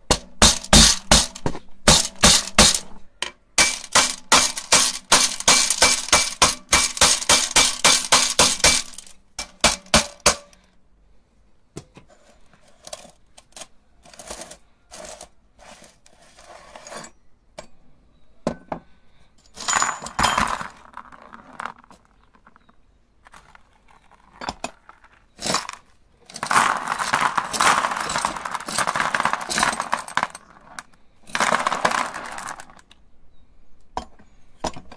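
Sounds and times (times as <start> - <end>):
hammer rapping on metal: 0.0 - 3.0, 3.6 - 10.6
grinder crunching glass marbles: 0.1 - 2.9, 3.6 - 10.5, 19.6 - 22.6, 23.3 - 33.0.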